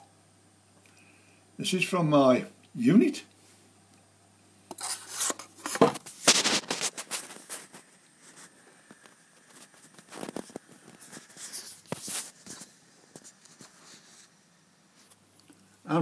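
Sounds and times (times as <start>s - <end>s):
camera handling rubbing and clicks: 4.7s - 7.6s.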